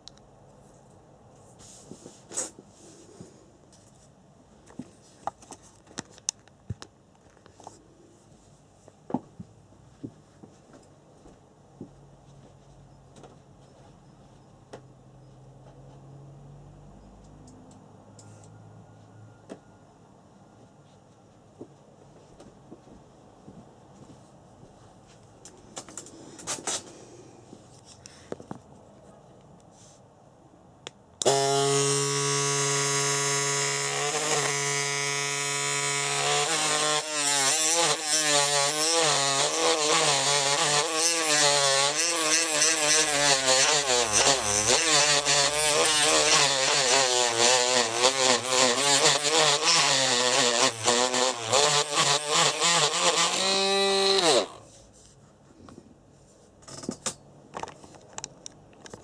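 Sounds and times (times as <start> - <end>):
power tool sanding: 31.2 - 54.7.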